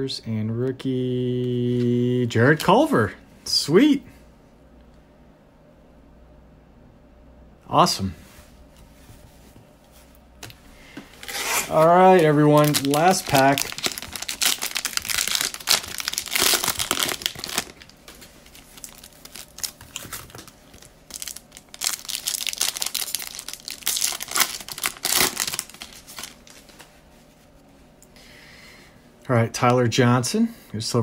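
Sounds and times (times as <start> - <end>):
cards rustling: 10.4 - 26.9
plastic wrapper tearing and crinkling: 11.2 - 26.9.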